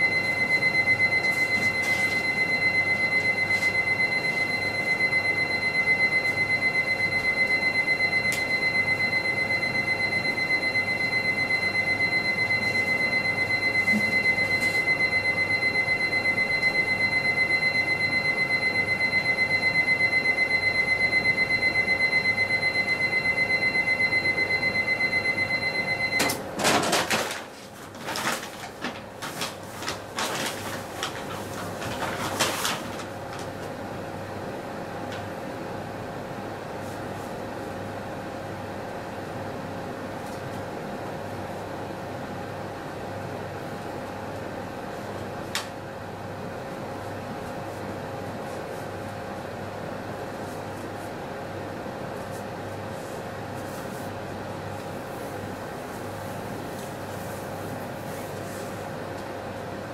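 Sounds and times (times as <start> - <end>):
paper rustling and crinkling: 26.7 - 33.7.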